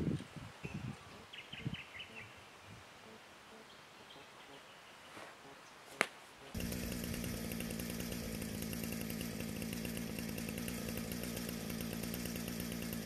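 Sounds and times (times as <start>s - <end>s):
chainsaw idling: 6.5s - 13.0s.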